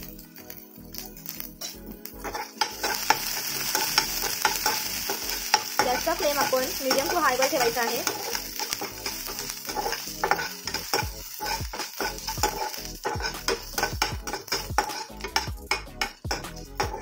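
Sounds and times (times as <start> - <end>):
vegetables sizzling in hot oil: 0.0 - 17.0
metal spatula scraping pan: 1.6 - 17.0.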